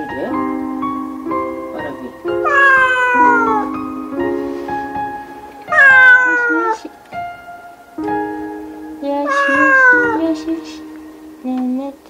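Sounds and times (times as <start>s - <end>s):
soft background music: 0.0s - 12.0s
cat meowing: 2.4s - 3.7s, 5.7s - 6.8s, 9.2s - 10.4s.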